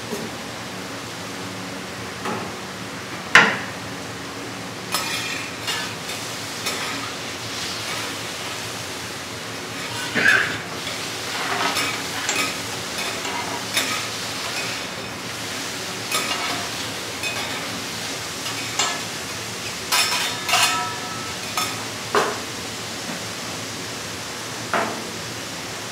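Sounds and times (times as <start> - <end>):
food sizzling on a griddle: 4.8 - 25.9
metal spatulas scraping and clacking: 4.9 - 7.2, 9.8 - 14.9, 16.1 - 17.8, 19.9 - 21.8.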